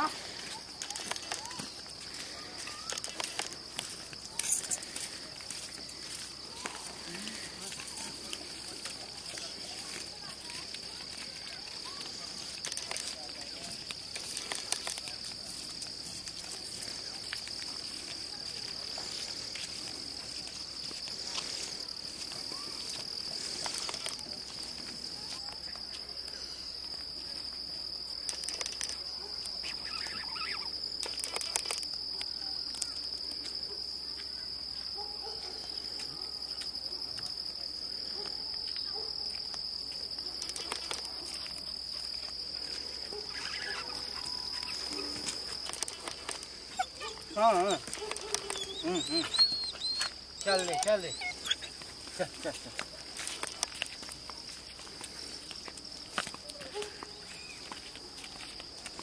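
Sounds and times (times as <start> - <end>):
high-pitched insect chorus: 0.0 - 59.0.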